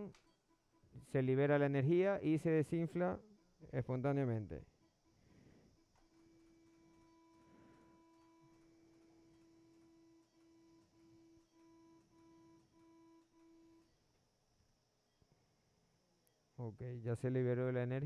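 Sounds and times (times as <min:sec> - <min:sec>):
medical generator tone and beeps: 0:06.0 - 0:14.0.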